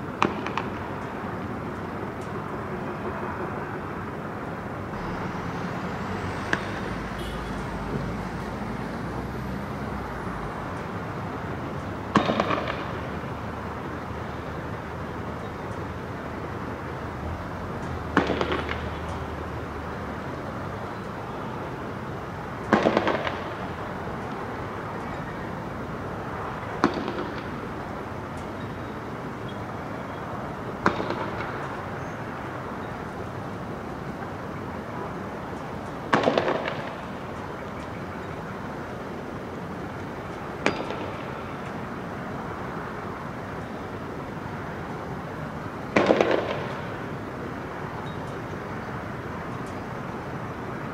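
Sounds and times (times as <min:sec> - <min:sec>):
street noise: 0:00.0 - 0:50.9
firework bang and crackling: 0:46.0 - 0:46.9.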